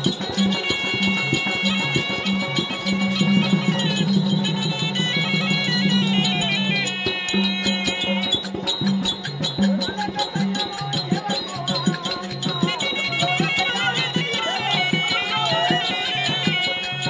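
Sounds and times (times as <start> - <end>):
high melody: 0.0 - 17.0.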